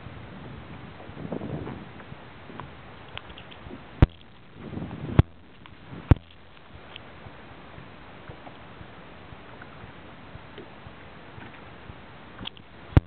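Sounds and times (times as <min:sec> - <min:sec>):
wind: 0:00.0 - 0:13.0
sharp clicks: 0:03.1 - 0:04.5, 0:05.2 - 0:07.1, 0:12.4 - 0:13.0.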